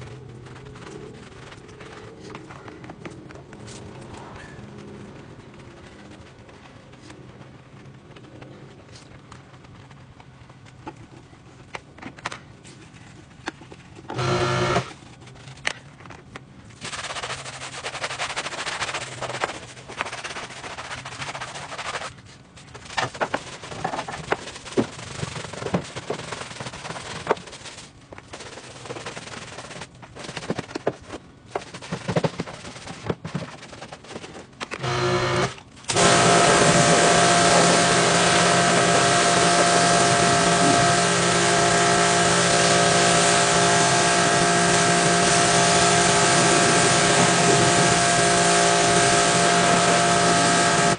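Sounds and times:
brush scrubbing tyre: 0.0 - 2.9, 14.2 - 14.9, 16.8 - 50.9.

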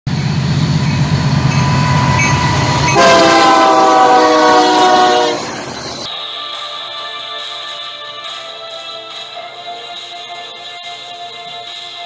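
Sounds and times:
diesel locomotives rumbling: 0.1 - 6.1
locomotive air horn chord: 0.1 - 6.1.

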